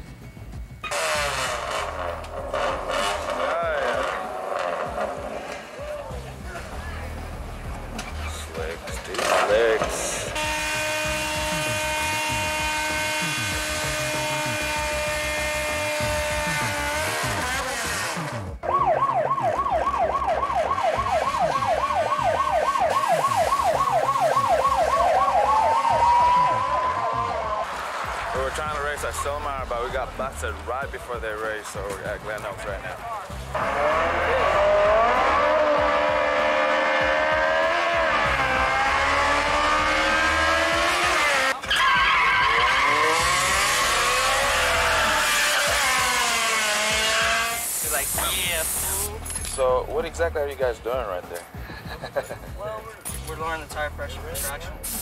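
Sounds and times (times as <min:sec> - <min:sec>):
car engine running: 0:00.0 - 0:18.6, 0:32.0 - 0:49.2
tyres squealing in a skid: 0:00.8 - 0:06.2, 0:38.2 - 0:49.1
siren wail: 0:10.2 - 0:28.4, 0:33.6 - 0:47.6
police siren yelping: 0:18.6 - 0:28.4, 0:33.6 - 0:47.6.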